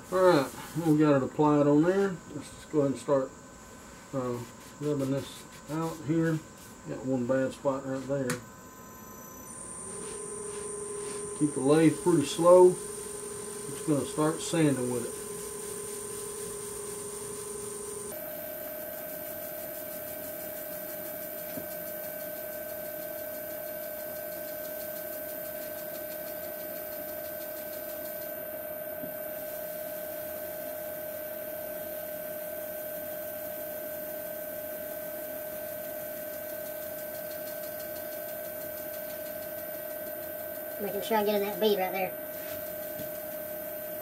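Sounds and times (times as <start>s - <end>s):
wood lathe motor whining: 8.8s - 19.2s.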